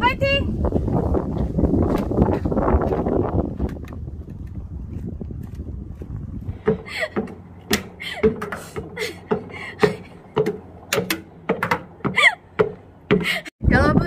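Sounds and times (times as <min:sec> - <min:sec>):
hard breathing: 0:06.4 - 0:10.3, 0:12.1 - 0:12.5, 0:13.1 - 0:13.6.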